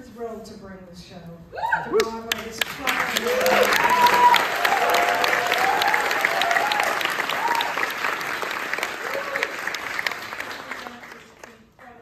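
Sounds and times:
audience applauding: 2.3s - 11.7s
people cheering: 3.0s - 11.0s.

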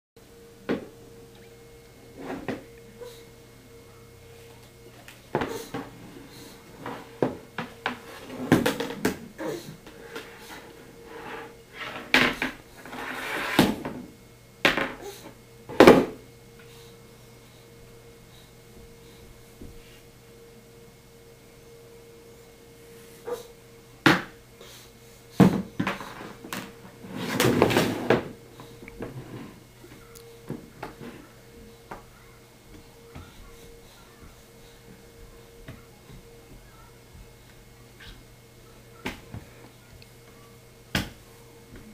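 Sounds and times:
chair scraping on table: 2.1s - 2.7s, 6.8s - 9.2s, 10.1s - 14.1s, 25.5s - 28.4s, 29.0s - 29.6s.

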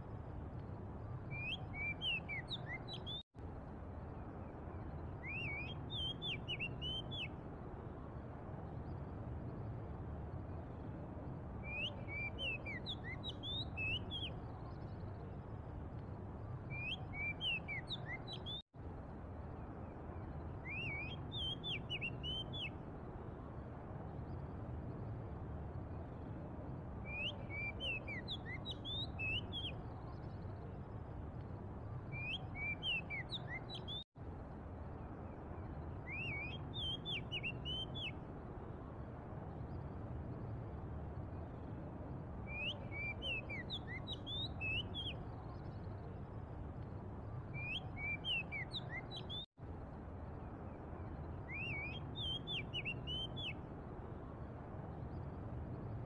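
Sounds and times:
bird singing whistled notes: 1.2s - 3.2s, 4.7s - 7.4s, 11.6s - 15.2s, 16.6s - 18.6s, 20.1s - 22.8s, 27.0s - 30.7s, 32.0s - 34.1s, 35.5s - 38.2s, 42.4s - 46.1s, 47.4s - 49.5s, 51.0s - 53.6s.

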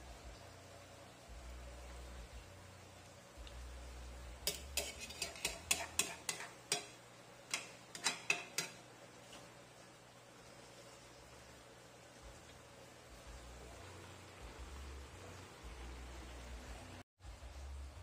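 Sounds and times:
metal spatula clinking on wok: 4.4s - 8.8s.

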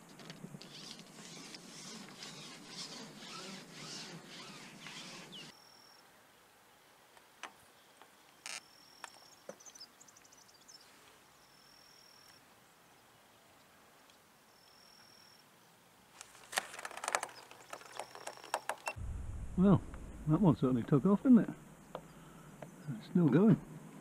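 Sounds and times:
fishing pole clicks and rustles: 16.1s - 19.0s.

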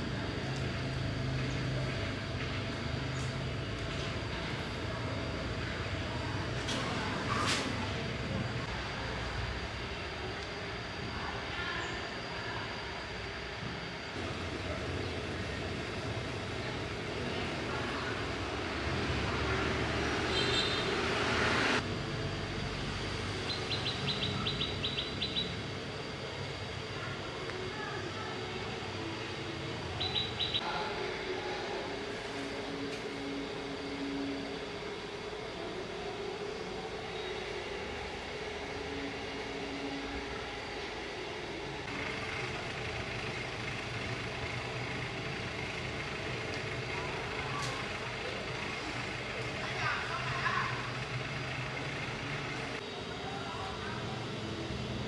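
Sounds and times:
low machine hum: 0.0s - 55.0s
rushing noise: 18.5s - 22.1s
bird chirping: 23.4s - 25.6s, 30.0s - 30.6s.

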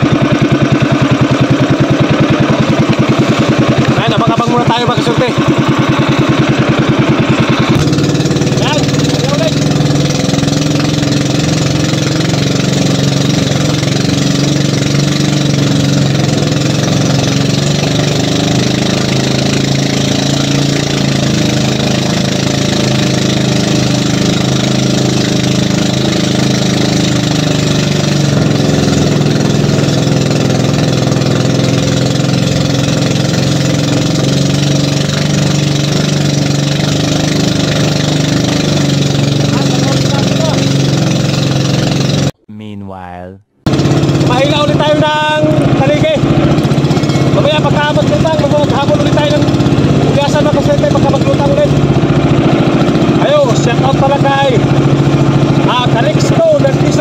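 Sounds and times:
water wash from hull: 0.0s - 42.3s, 43.7s - 57.0s
boat engine running: 0.0s - 42.8s, 43.5s - 57.0s.

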